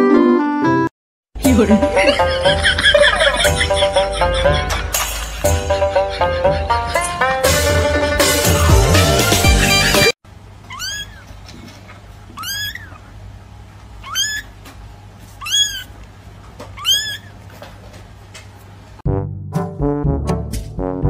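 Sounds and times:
loud music: 0:01.4 - 0:10.2
kitten meowing: 0:10.7 - 0:11.3, 0:12.3 - 0:13.1, 0:14.0 - 0:14.5, 0:15.4 - 0:16.0, 0:16.8 - 0:17.4.

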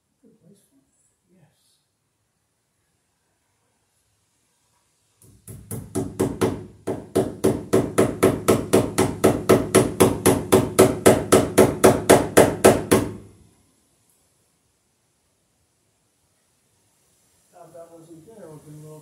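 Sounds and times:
hammer blows on wood: 0:05.2 - 0:13.3.

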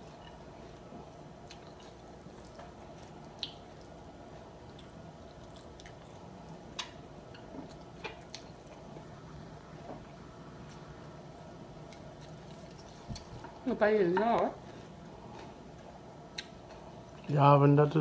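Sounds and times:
chewing and mouth sounds: 0:00.0 - 0:08.9, 0:11.8 - 0:13.6, 0:14.6 - 0:17.3.

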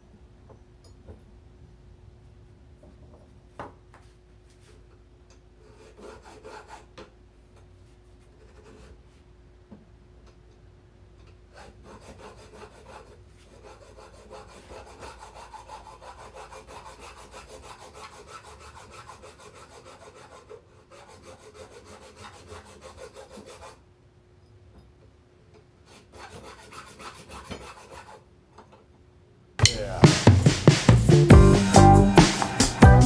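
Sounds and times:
hacksaw sawing steel rod: 0:05.7 - 0:06.9, 0:11.6 - 0:23.8, 0:25.9 - 0:28.2.

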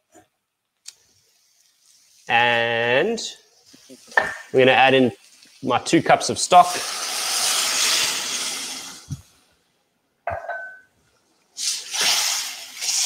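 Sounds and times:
stock sizzling in hot pot: 0:00.9 - 0:02.7, 0:03.4 - 0:09.4, 0:11.5 - 0:13.0.

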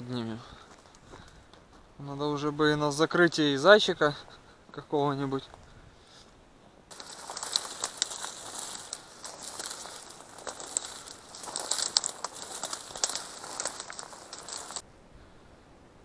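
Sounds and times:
dry reeds rustling and snapping: 0:06.9 - 0:14.8.

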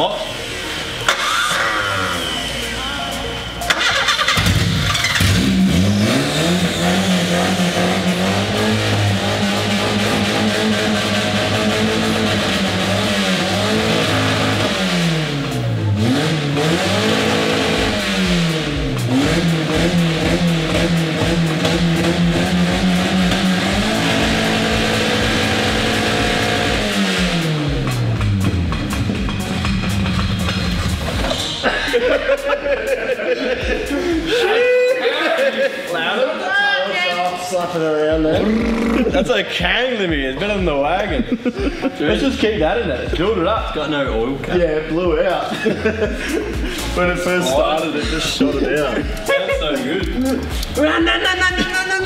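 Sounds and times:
car engine revving: 0:00.2 - 0:02.7, 0:03.6 - 0:34.4, 0:38.2 - 0:41.1.

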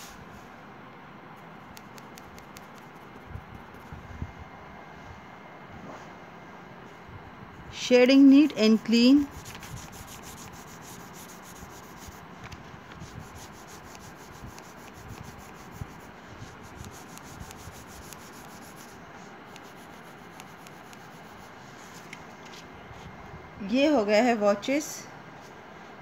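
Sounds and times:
pencil scratching on paper: 0:09.2 - 0:12.3, 0:12.9 - 0:22.1.

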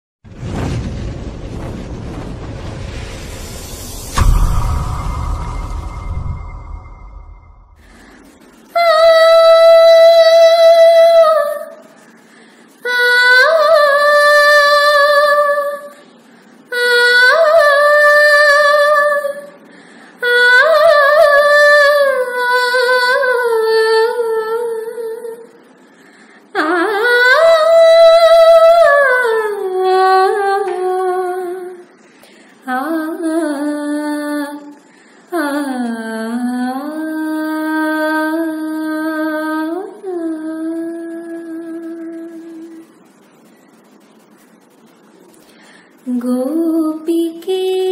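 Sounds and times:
woman singing unaccompanied: 0:08.6 - 0:11.9, 0:12.8 - 0:16.0, 0:16.7 - 0:19.6, 0:20.2 - 0:25.6, 0:26.5 - 0:31.9, 0:32.6 - 0:42.9, 0:46.0 - 0:47.9.

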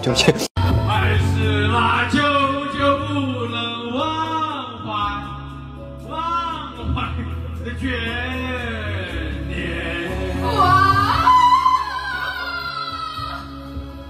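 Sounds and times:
backing music: 0:00.0 - 0:14.0
man singing karaoke: 0:00.6 - 0:11.8.

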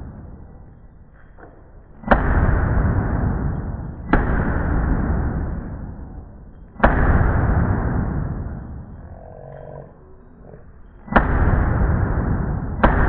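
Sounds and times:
rifle shots echoing: 0:02.0 - 0:09.0, 0:11.0 - 0:13.0.

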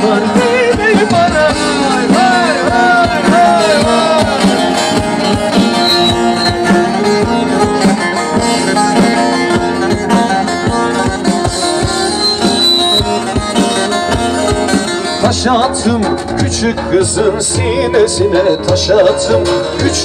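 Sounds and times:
person singing: 0:00.0 - 0:05.5, 0:15.0 - 0:20.0
drum beat: 0:00.0 - 0:17.8
plucked string instrument: 0:00.0 - 0:20.0.

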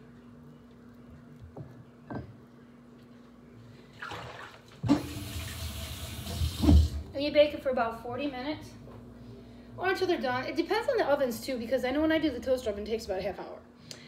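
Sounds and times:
kitchen tap water running: 0:04.1 - 0:07.1.

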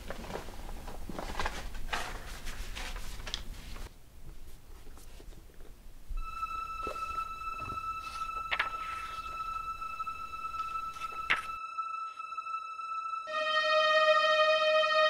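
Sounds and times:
paper page sounds: 0:00.0 - 0:03.9, 0:06.8 - 0:11.6
clothing and fabric rustling: 0:00.0 - 0:05.8
steady high tone: 0:06.2 - 0:15.0.

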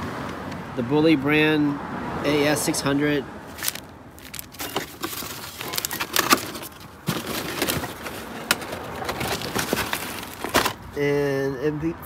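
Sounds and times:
cardboard packaging rustling: 0:03.5 - 0:11.0.

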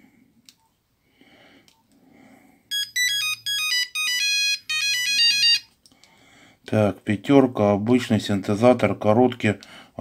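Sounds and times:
beeping phone ringtone melody: 0:02.7 - 0:05.7.

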